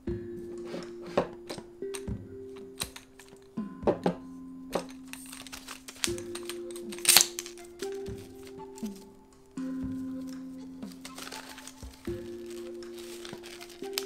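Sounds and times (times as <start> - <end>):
background music with held notes: 0.0 - 14.0
stool legs clicking and knocking: 0.4 - 9.0.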